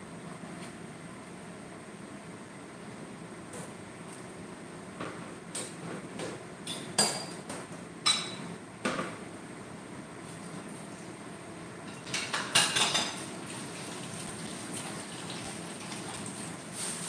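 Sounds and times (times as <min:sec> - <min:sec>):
dishes and utensils clinking: 0:06.7 - 0:08.5, 0:11.9 - 0:13.2.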